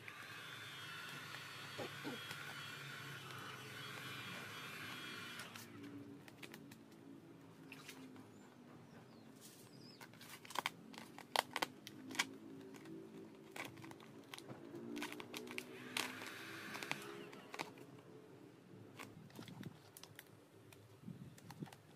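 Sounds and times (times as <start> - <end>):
heat gun blower: 0.0 - 6.0, 15.0 - 17.7.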